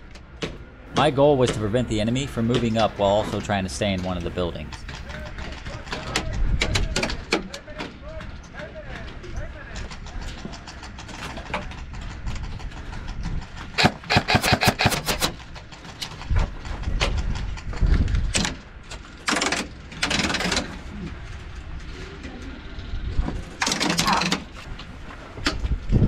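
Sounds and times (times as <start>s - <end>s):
airsoft gun shots: 13.8s - 15.4s.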